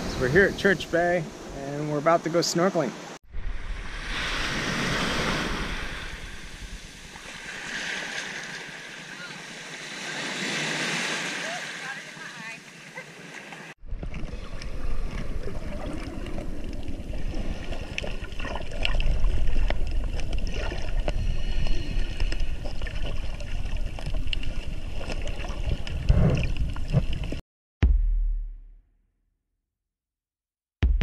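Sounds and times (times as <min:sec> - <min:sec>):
muffled underwater rumble: 0:13.9 - 0:27.4.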